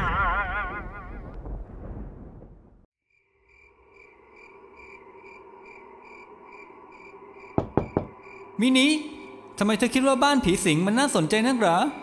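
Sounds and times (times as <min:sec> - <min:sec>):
crickets chirping: 0:03.0 - 0:11.2
sharp knocks: 0:07.6 - 0:08.2.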